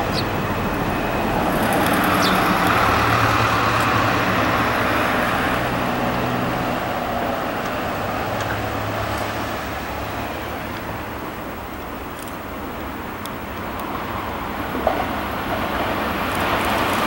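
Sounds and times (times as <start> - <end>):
electric train rumbling: 0.0 - 17.0.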